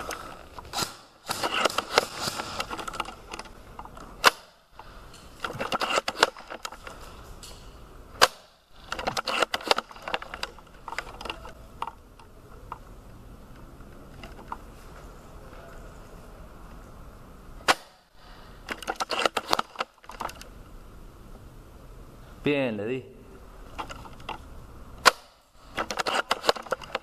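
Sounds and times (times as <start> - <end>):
rapid rattling clicks: 0.0 - 7.1, 18.7 - 20.5, 25.6 - 27.0
rifle mechanism clacks: 0.0 - 12.8, 18.7 - 20.5, 23.7 - 24.4, 25.0 - 27.0.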